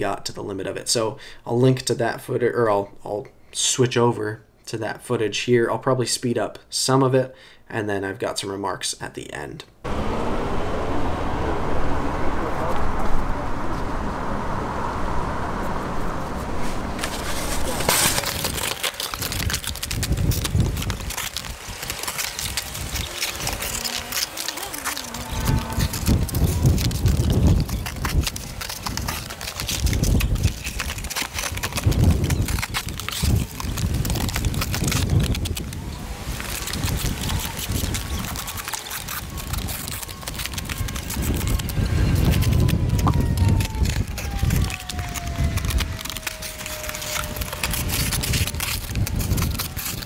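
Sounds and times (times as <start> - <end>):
faint falling tone: 9.8 - 18.2
wind buffeting microphone: 9.9 - 50.0
knife slicing cardboard: 17.0 - 33.6.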